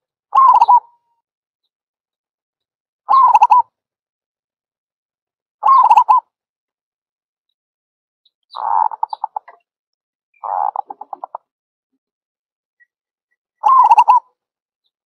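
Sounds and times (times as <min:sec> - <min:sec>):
dove cooing: 0:00.4 - 0:00.8, 0:03.1 - 0:03.6, 0:05.6 - 0:06.2, 0:13.6 - 0:14.2.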